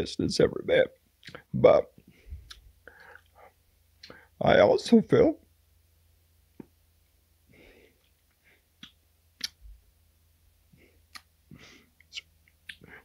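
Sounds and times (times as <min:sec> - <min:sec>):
mouth clicks: 0:01.2 - 0:01.5, 0:02.4 - 0:03.3, 0:08.8 - 0:09.6, 0:11.1 - 0:11.3, 0:12.0 - 0:13.0
man breathing quietly: 0:02.0 - 0:04.4, 0:07.4 - 0:08.8, 0:10.7 - 0:12.0, 0:12.8 - 0:13.0.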